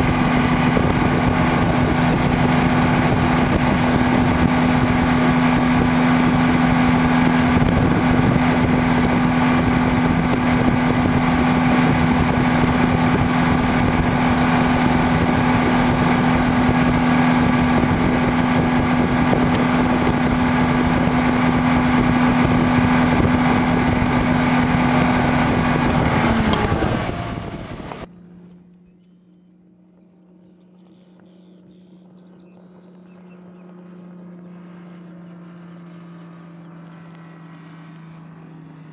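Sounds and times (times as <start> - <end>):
wind and water rushing: 0.0 - 28.2
distant outboard motor: 0.0 - 38.9
outboard motor running: 0.0 - 38.9.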